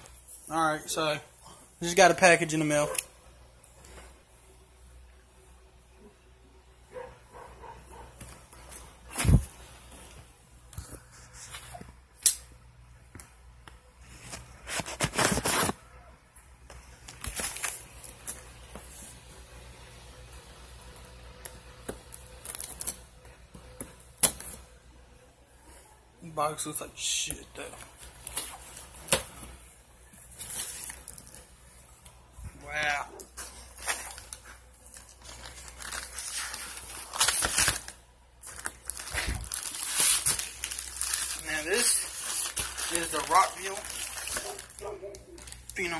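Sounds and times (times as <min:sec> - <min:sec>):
cardboard and foam rustling: 0:07.9 - 0:11.8, 0:14.0 - 0:15.8, 0:27.8 - 0:45.9.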